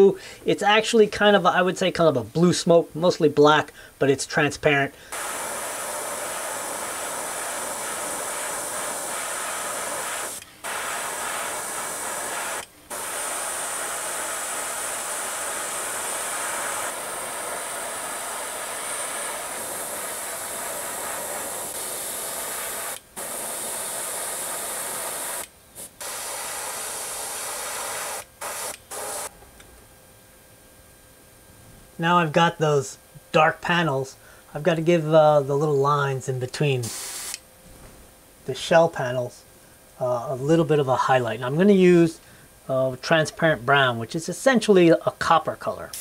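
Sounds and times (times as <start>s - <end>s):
airbrush spraying hiss: 5.1s - 29.3s, 36.8s - 37.4s.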